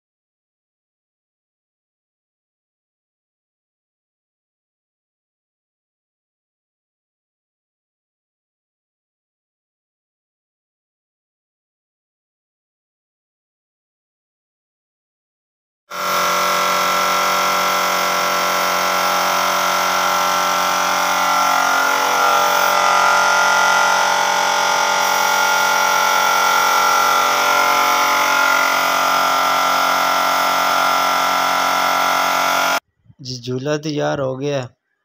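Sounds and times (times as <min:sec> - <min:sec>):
electric air compressor running: 0:15.9 - 0:32.8.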